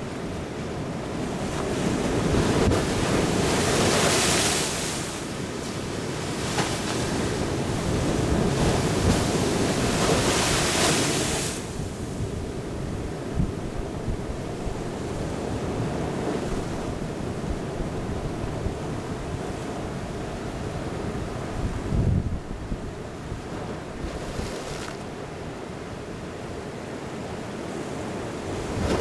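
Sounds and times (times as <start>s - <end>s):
waves crashing: 0.0s - 12.4s, 23.1s - 29.0s
surf breaking over rocks: 2.0s - 11.7s.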